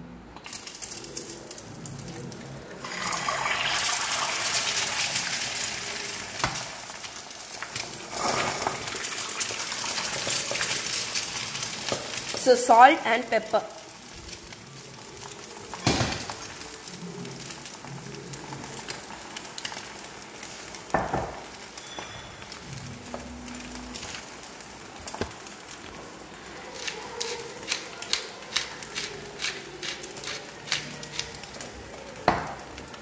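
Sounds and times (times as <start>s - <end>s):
pepper mill grinding: 0.4s - 6.7s, 21.8s - 33.0s
eggs sizzling in a pan: 0.4s - 33.0s.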